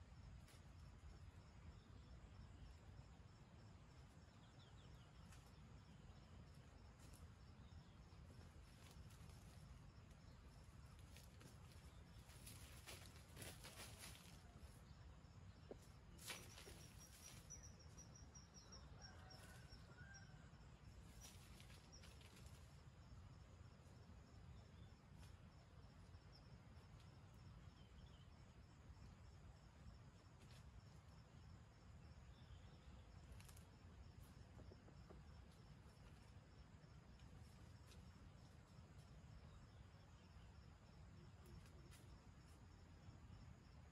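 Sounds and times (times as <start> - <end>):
faint chirps: 0.0 - 22.8.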